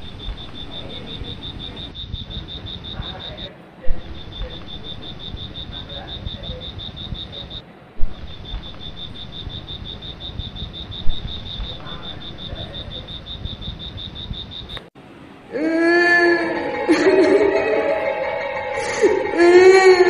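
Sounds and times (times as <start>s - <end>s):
eerie wailing voice: 0.0s - 2.0s, 15.4s - 20.0s
high-pitched insect trill: 0.0s - 14.8s, 16.3s - 20.0s.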